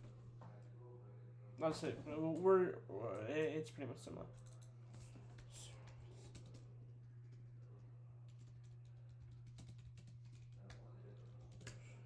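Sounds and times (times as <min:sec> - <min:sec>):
low electrical hum: 0:00.0 - 0:12.0
typing on computer keyboard: 0:04.4 - 0:04.7, 0:08.3 - 0:11.9.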